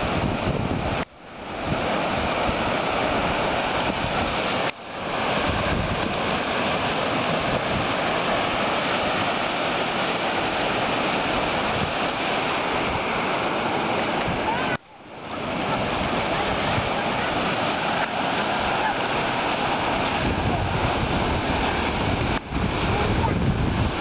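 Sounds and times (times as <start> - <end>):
surf washing up sandy beach: 0.0 - 24.0
wind on microphone: 0.0 - 24.0.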